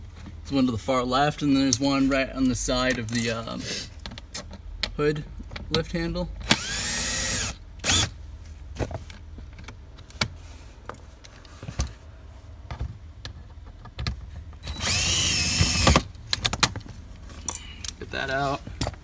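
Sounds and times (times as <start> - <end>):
power screwdriver whirring: 6.5 - 8.1, 14.6 - 16.0
handling clicks and knocks: 18.6 - 19.0.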